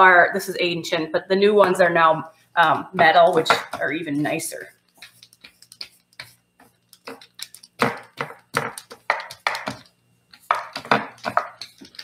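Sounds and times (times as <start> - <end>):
roller knocking on baking stone: 7.8 - 12.0.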